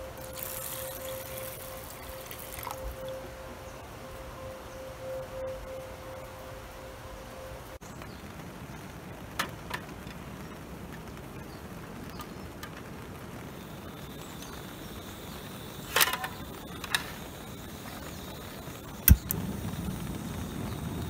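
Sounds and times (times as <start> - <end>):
outdoor background: 0.0 - 21.0
piezo igniter clicking: 18.9 - 20.4
pot clicking on burner: 19.0 - 19.4.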